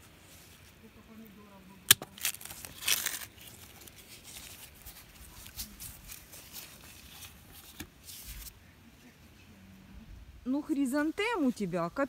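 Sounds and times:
plants rustling: 0.0s - 8.6s.

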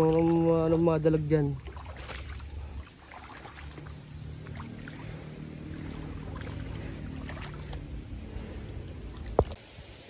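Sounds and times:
small splashes and clicks: 0.0s - 1.0s, 1.6s - 8.0s, 9.1s - 9.6s
water sloshing: 0.0s - 9.6s
low steady hum: 0.0s - 10.0s.

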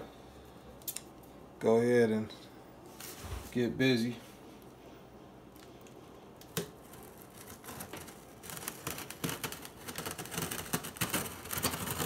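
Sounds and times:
scissors slitting packing tape: 6.4s - 12.0s.

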